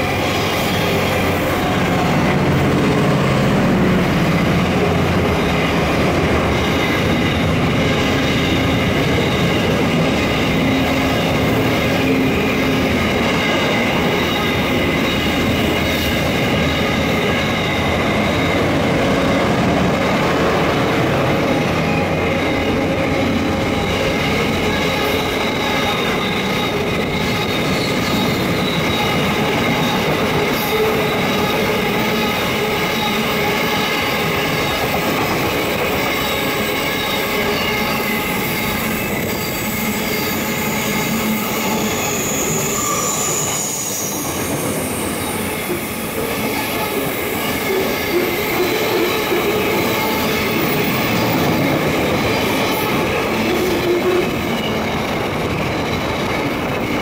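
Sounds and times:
freight train wheels on rails: 0.0s - 57.0s.

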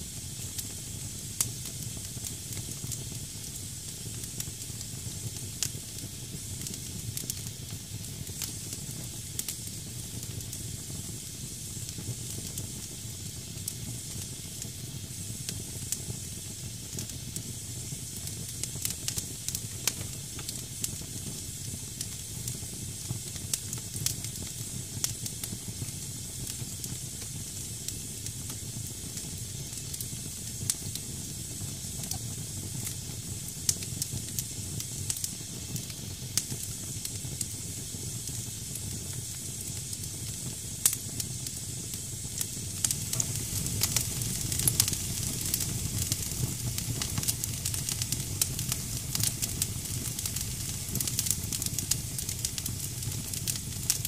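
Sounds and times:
fire crackling and popping: 0.0s - 54.0s
damp logs hissing: 42.3s - 49.4s
low steady rumble: 42.8s - 46.1s.

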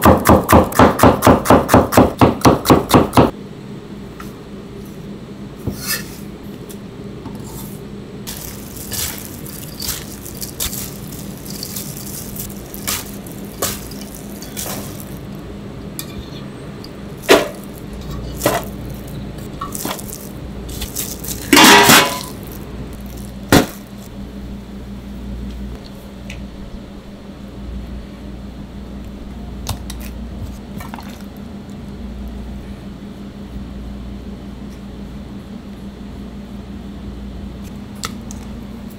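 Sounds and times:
steady low hum: 0.0s - 38.9s
metal bowls clinking and clattering: 8.3s - 15.2s, 21.0s - 22.5s.

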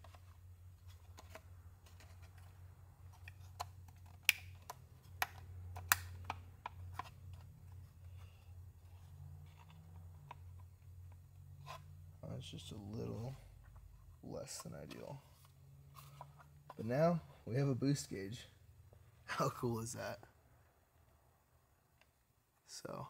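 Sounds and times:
plastic parts clicking and tapping: 3.1s - 7.8s.

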